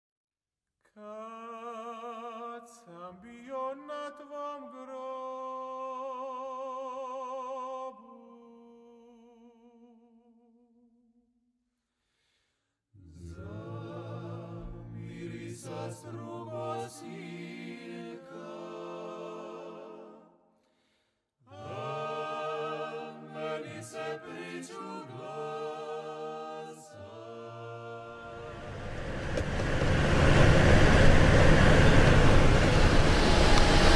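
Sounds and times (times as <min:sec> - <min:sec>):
unaccompanied choral singing: 0:13.0 - 0:20.3, 0:21.5 - 0:33.9
hiss of outdoor noise: 0:28.4 - 0:33.9.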